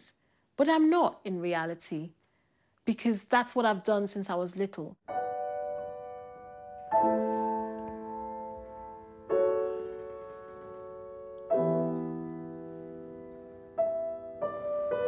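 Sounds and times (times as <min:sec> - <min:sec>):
gentle piano chords: 0:05.1 - 0:15.0.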